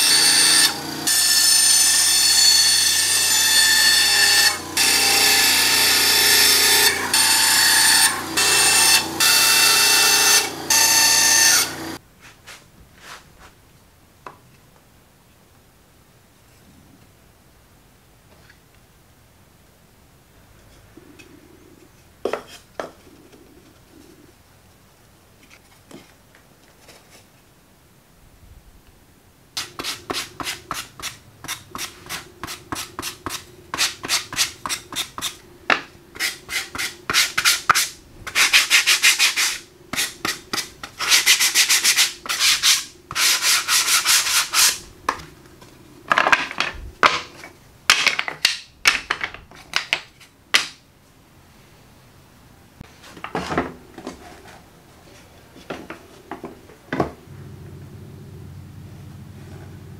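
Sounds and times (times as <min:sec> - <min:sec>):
hand rasp scraping board edge: 0:29.6 - 0:35.4, 0:36.2 - 0:44.8.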